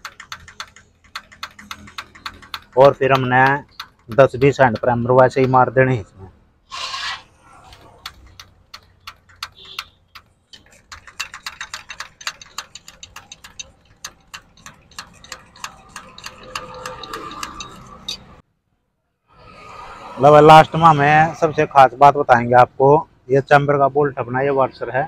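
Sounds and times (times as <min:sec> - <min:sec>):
primer pump plunger clicking: 0:00.0 - 0:05.7, 0:07.7 - 0:18.3.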